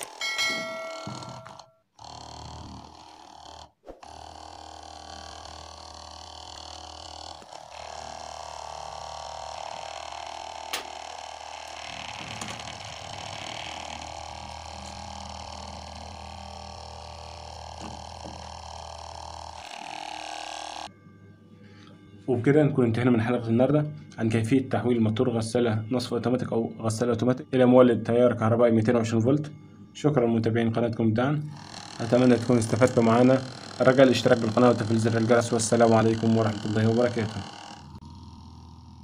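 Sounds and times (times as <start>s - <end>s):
electric motor humming: 0.0s - 22.2s, 31.4s - 39.0s.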